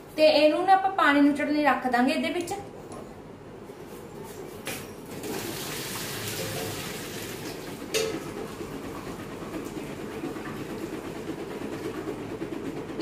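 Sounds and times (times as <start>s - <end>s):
water splashing into colander: 5.2s - 8.3s
pot clanking against sink: 7.9s - 8.3s.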